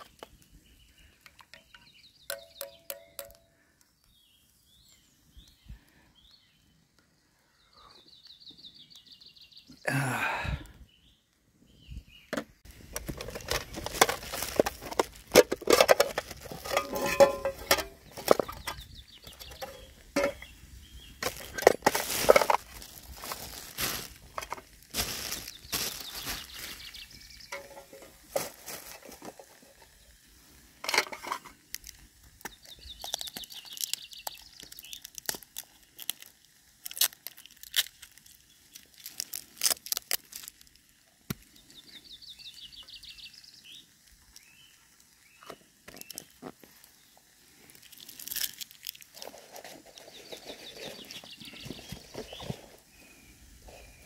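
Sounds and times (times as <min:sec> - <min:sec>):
metal cookware clinking and rattling: 0:15.4 - 0:18.8, 0:19.5 - 0:20.4, 0:27.5 - 0:28.2, 0:30.8 - 0:31.6.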